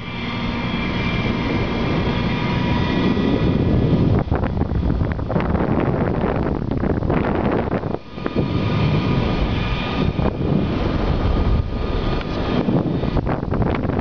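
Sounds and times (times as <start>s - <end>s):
wind rushing over microphone: 0.0s - 14.0s.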